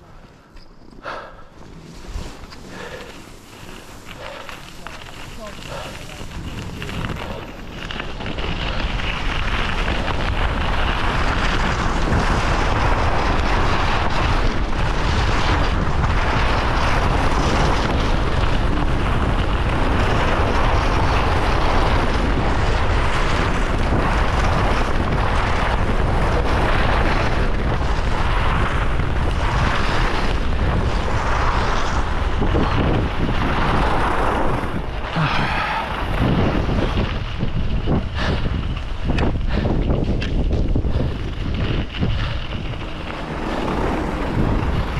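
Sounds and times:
wind buffeting microphone: 0.0 - 44.9
skis hissing on snow: 1.8 - 7.8.

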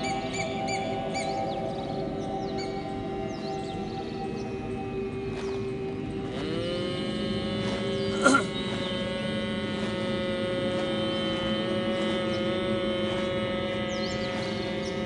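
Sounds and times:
group humming: 6.2 - 15.0.

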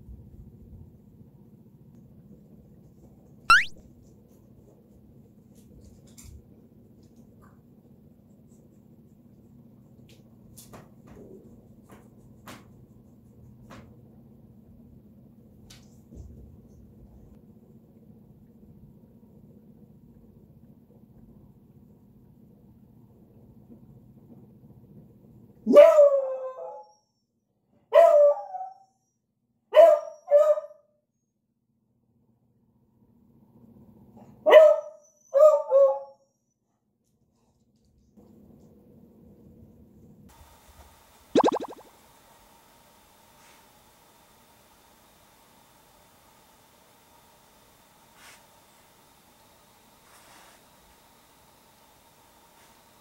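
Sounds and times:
low room hum: 0.0 - 28.0, 30.9 - 34.7, 35.7 - 52.8
comic rising whistle: 3.5 - 3.8, 41.4 - 41.9.

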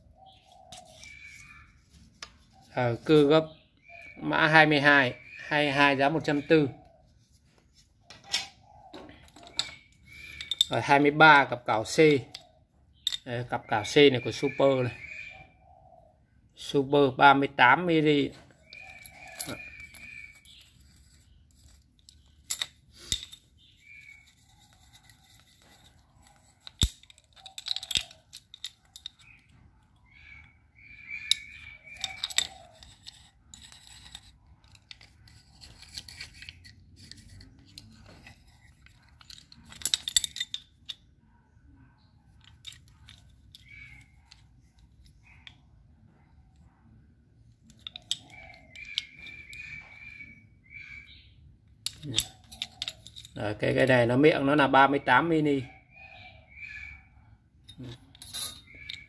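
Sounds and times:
metal clamp clicks and scrapes: 0.3 - 3.2, 7.7 - 10.8, 12.2 - 13.3, 18.3 - 41.1, 42.3 - 45.6, 47.5 - 50.1, 51.7 - 53.8, 57.7 - 59.0.

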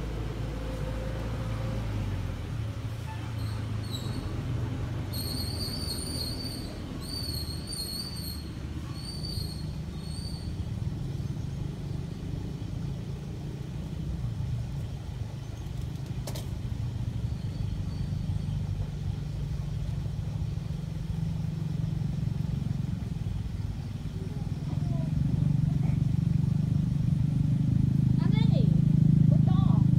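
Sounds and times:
low outdoor rumble: 0.0 - 29.9.

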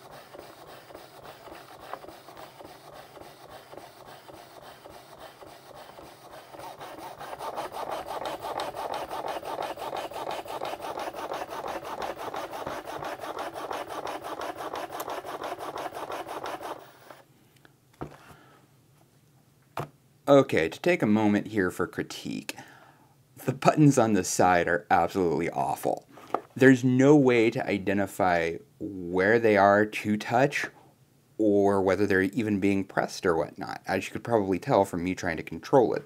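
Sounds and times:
mechanical motor stroking rhythmically: 0.0 - 17.2.

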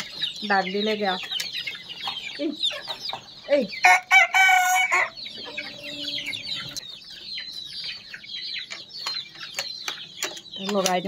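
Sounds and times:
chickens peeping and clucking: 0.0 - 11.0
chicken loud call: 3.8 - 6.8.

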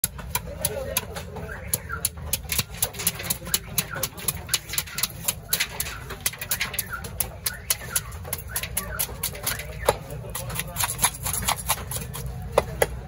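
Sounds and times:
knife scraping fish scales: 2.3 - 12.5.

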